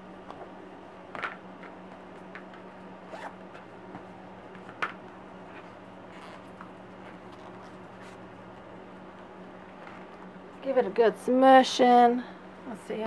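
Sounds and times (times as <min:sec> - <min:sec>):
plastic zipper bag rustling: 0:03.1 - 0:03.7.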